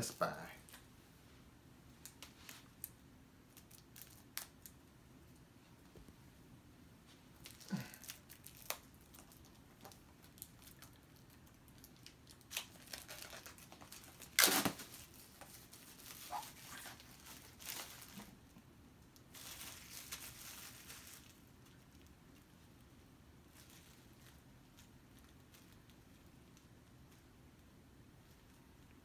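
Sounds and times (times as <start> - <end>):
plastic wrap tearing and crinkling: 3.5 - 4.8, 7.4 - 18.4, 19.2 - 22.1.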